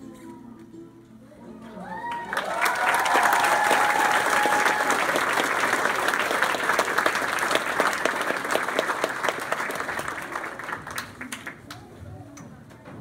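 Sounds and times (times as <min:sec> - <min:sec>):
audience applauding: 0:01.8 - 0:11.9.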